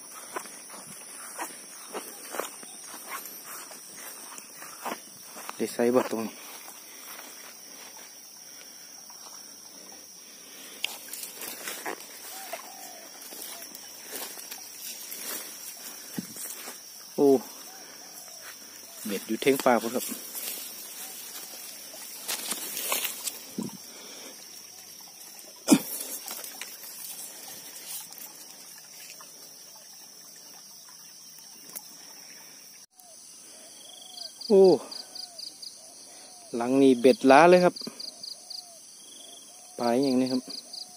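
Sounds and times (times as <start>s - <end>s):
footsteps through tall grass: 0.0s - 29.4s
high insect buzz: 0.0s - 40.9s
faint water trickling: 0.1s - 32.9s.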